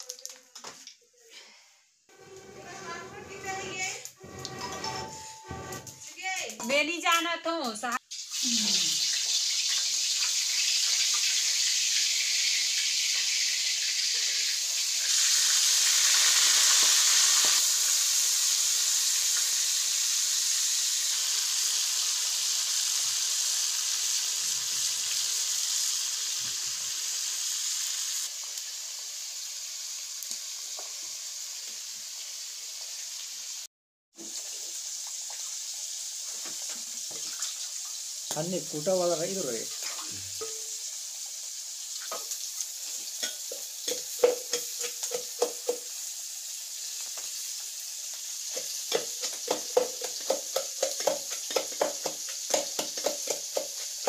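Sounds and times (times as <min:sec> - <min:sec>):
fish frying in hot oil: 0:08.0 - 0:54.0.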